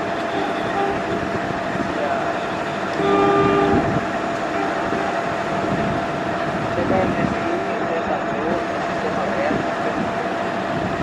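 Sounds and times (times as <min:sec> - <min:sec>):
train horn blast: 0:00.0 - 0:01.5, 0:02.2 - 0:06.1
train running: 0:00.0 - 0:11.0.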